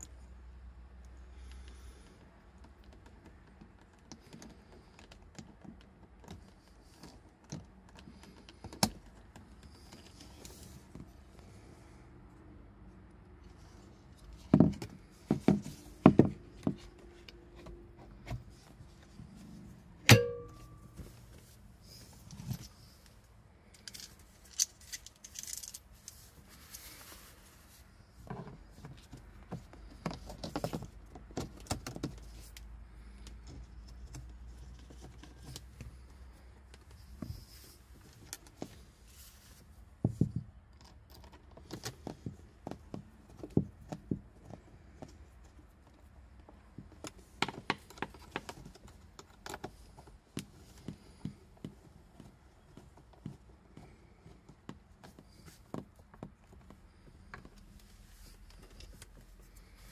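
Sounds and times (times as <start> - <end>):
sharp knock with brief ringing: 20.1 - 20.8.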